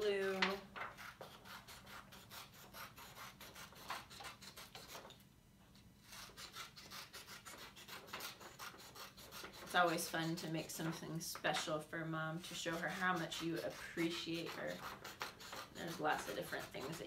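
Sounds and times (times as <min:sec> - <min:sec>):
paper rustling: 0:00.0 - 0:01.1.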